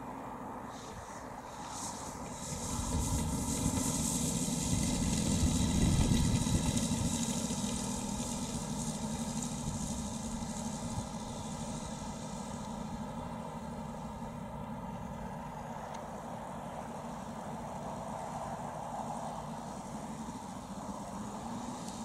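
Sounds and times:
model plane engines running: 0.0 - 22.0.

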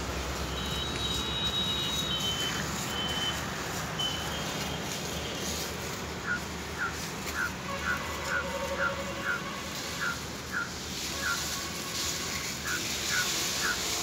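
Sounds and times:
outdoor background hiss: 0.0 - 14.0
high-pitched beeping tones: 0.6 - 3.4.

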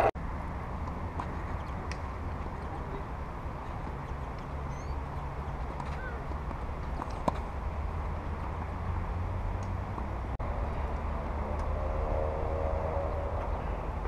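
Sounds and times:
racket hitting tennis ball: 5.3 - 8.8.

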